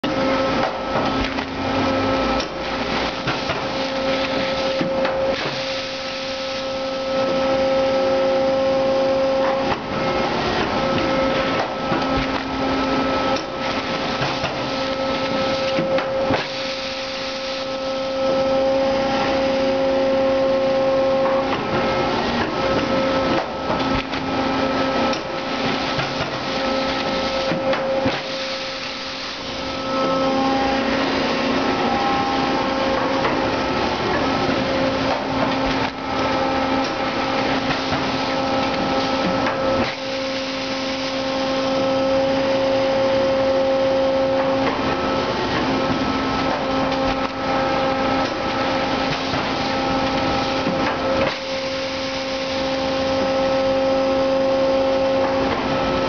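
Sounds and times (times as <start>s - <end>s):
bagging machine hum: 0.0s - 56.0s
machine knocks and clatter: 13.4s - 16.6s.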